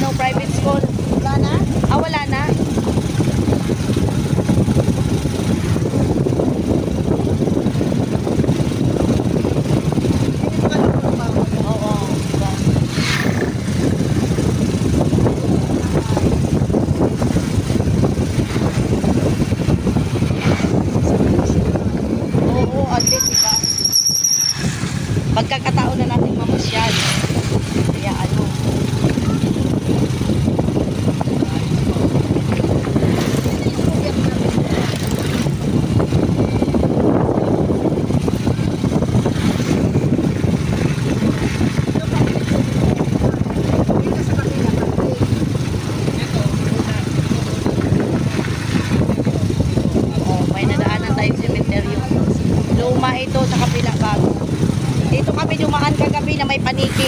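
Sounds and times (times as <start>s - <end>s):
motorcycle engine and road rumble: 0.0s - 57.0s.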